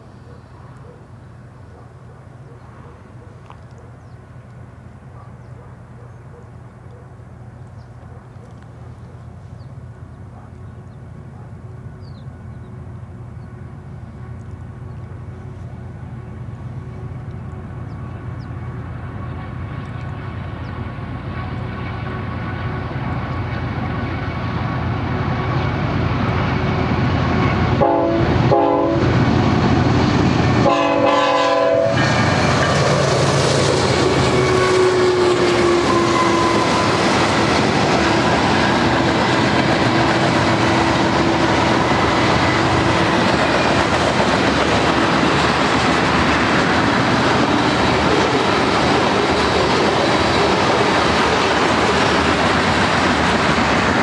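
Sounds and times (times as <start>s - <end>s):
diesel locomotive engines: 0.0s - 54.0s
train horn blasts: 16.8s - 24.4s, 25.2s - 29.6s, 30.5s - 33.2s, 33.8s - 37.6s
train wheels clattering on rails: 31.9s - 54.0s.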